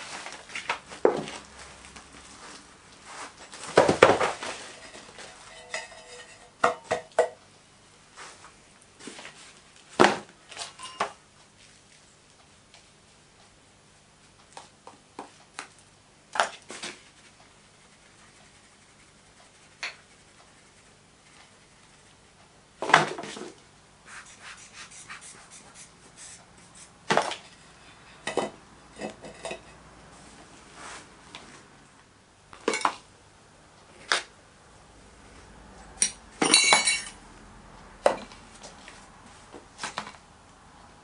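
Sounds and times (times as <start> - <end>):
metal knocks and clinks: 36.0 - 37.2.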